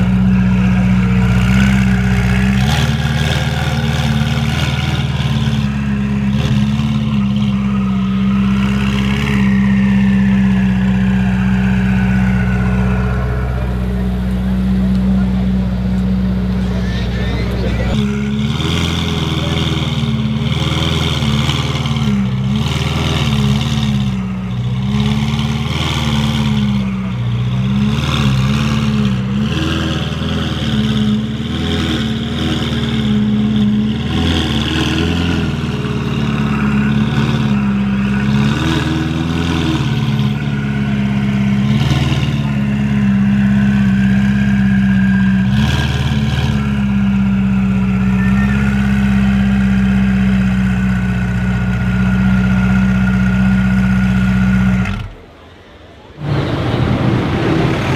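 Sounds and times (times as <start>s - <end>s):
sports car engine idling: 0.0s - 18.4s, 46.8s - 56.5s.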